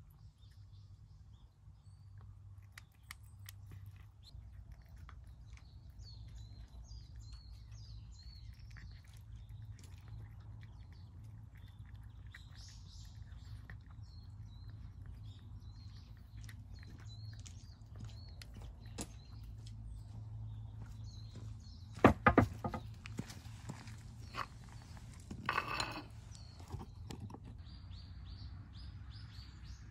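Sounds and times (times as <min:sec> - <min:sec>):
bird chirping: 0:00.0 - 0:29.9
cat chewing food: 0:01.7 - 0:20.6.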